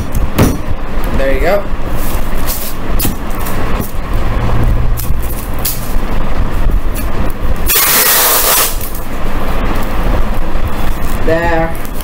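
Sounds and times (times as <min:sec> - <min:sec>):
steady low rumble: 0:00.0 - 0:07.7, 0:08.8 - 0:12.0
tape ripping off roll: 0:07.7 - 0:09.1.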